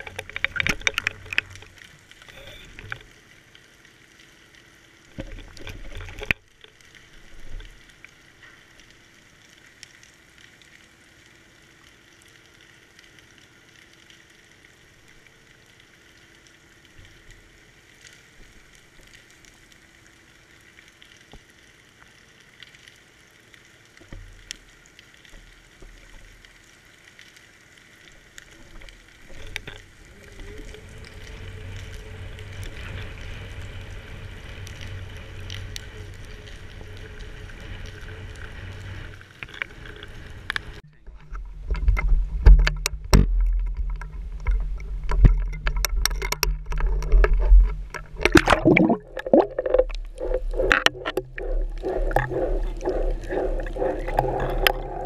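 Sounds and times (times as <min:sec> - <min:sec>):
underwater crackling hiss: 0:44.8 - 0:55.0
low rumble: 0:46.8 - 0:55.0.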